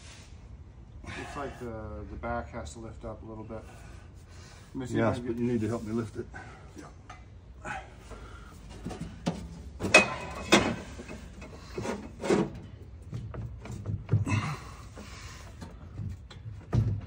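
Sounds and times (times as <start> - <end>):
metal-on-metal clunks: 8.8 - 12.8
metal scraping rub: 10.4 - 12.8.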